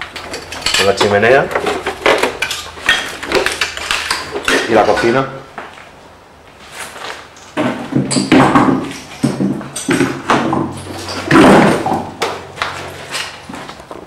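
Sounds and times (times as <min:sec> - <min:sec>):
knocks and clatter: 0:07.6 - 0:14.0.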